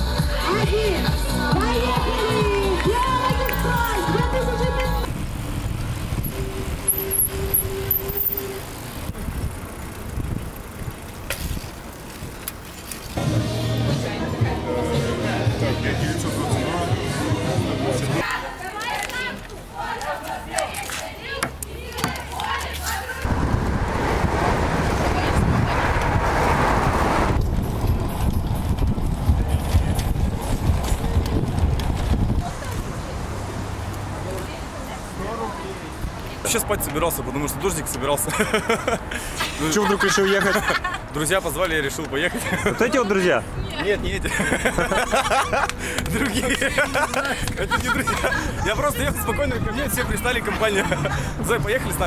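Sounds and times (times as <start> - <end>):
background music: 0.0 - 5.1, 13.2 - 18.2
bicycle road and wind rumble: 0.0 - 52.0
bike rattling over cobblestones: 1.5 - 13.3, 24.8 - 39.3, 39.9 - 52.0
wind buffeting microphone: 5.0 - 12.4, 23.2 - 33.3.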